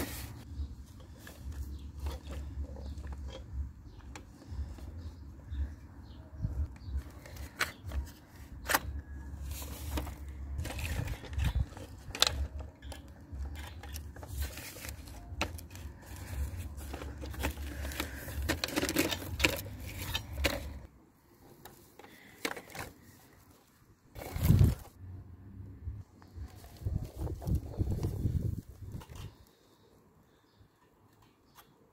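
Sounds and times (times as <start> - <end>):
rubber puppet scraping over dirt: 24.1 - 24.9.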